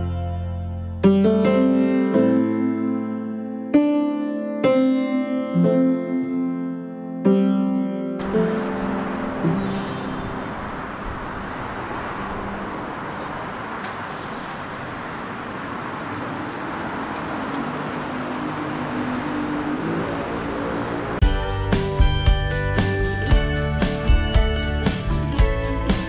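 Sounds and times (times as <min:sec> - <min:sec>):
road traffic rush: 0:08.2 - 0:26.0.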